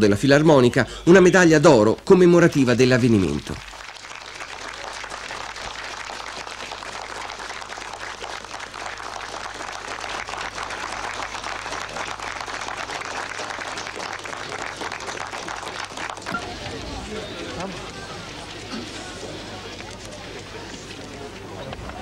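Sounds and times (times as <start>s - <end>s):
crowd applauding: 3.0s - 21.3s.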